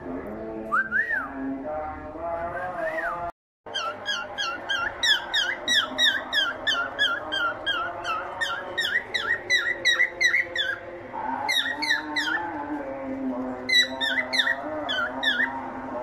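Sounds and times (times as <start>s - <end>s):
cockatiel chirping: 3.7s - 10.8s, 11.5s - 12.4s, 13.7s - 15.5s.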